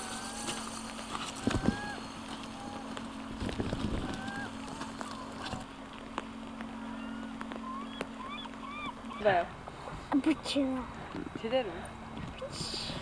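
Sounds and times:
gulls calling: 0:00.0 - 0:11.0
river water flowing: 0:00.0 - 0:12.4
steady low hum: 0:00.0 - 0:13.0.

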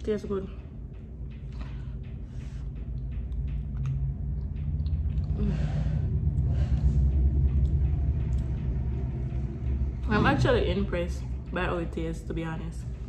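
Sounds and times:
low rumble: 0:00.0 - 0:13.0
woman chewing food: 0:02.8 - 0:05.6.

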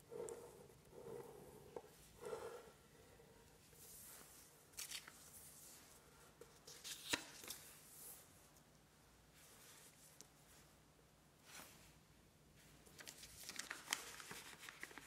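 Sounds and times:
paper rustling and crinkling: 0:04.8 - 0:05.8, 0:12.9 - 0:15.0
sharp paper crackle: 0:13.0 - 0:15.0.

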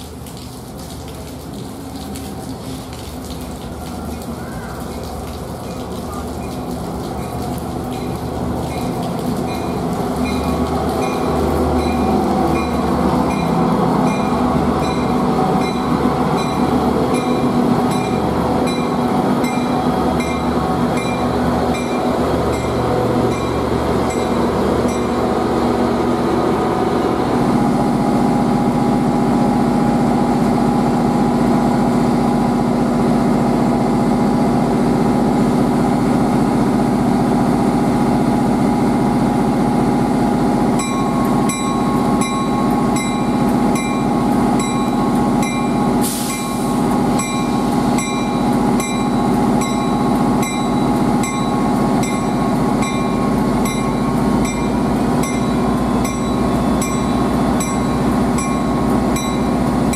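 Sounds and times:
locomotive pulling in and stopping: 0:00.0 - 0:59.9
bell dinging: 0:47.2 - 0:59.6.

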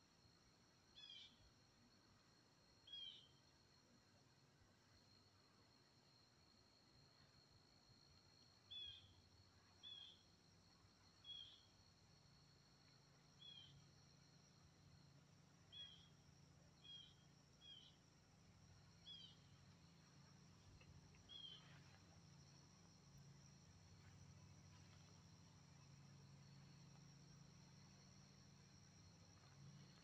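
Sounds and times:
insects droning: 0:00.0 - 0:30.0
bird chirping: 0:19.0 - 0:19.6, 0:20.8 - 0:21.9.

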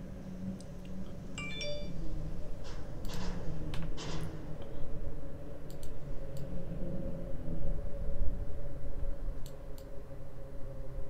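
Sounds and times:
computer mouse clicks: 0:05.7 - 0:06.5, 0:09.4 - 0:09.9.

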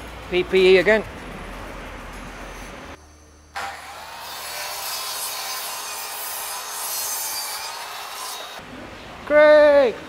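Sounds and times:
mitre saw cutting wood: 0:03.6 - 0:08.6.

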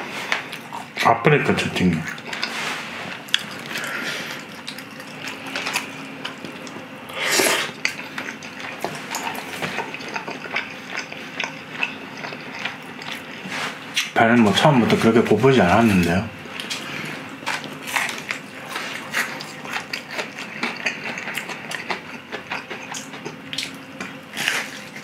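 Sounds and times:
wet chewing and mouth smacking: 0:02.0 - 0:06.9, 0:07.6 - 0:14.2, 0:16.5 - 0:25.0.

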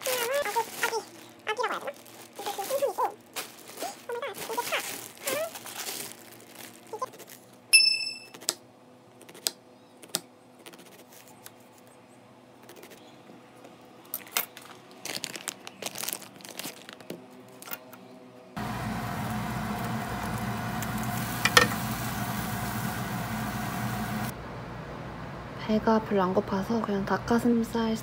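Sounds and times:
plastic packaging crinkling and tearing: 0:00.0 - 0:07.5, 0:14.2 - 0:17.7.

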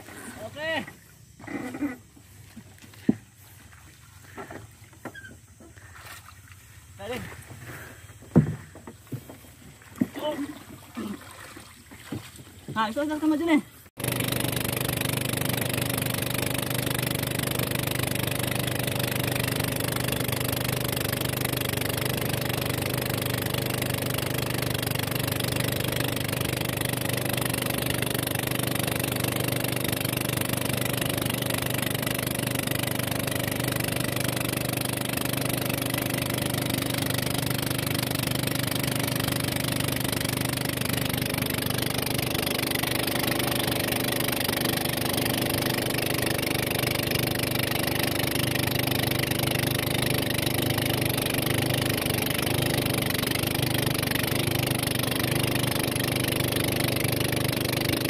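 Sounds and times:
motorboat engine running: 0:00.0 - 0:58.0
water rushing past hull: 0:09.7 - 0:13.5.

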